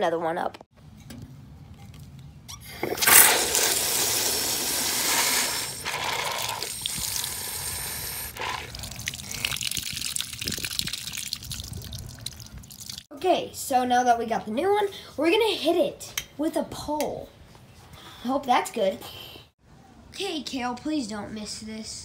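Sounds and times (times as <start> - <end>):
water rushing into balloon: 2.6 - 13.1
water spraying and splashing: 2.8 - 13.1.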